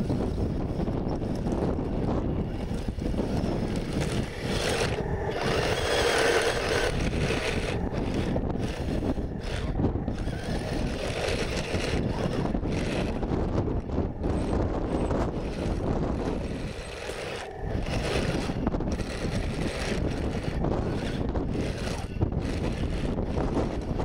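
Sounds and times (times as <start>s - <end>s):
toy tank motor grinding through mud: 0.0s - 24.0s
wind buffeting microphone: 0.0s - 24.0s.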